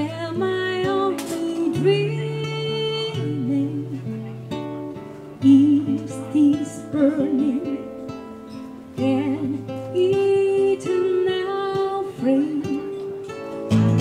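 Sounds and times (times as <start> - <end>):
woman singing with vibrato: 0.0 - 4.2, 5.4 - 8.1, 9.0 - 13.2
acoustic guitar playing: 0.0 - 14.0.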